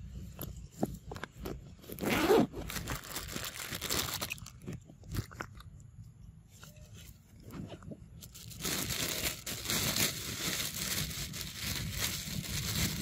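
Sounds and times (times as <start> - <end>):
dry leaves and twigs crunching: 8.2 - 13.0.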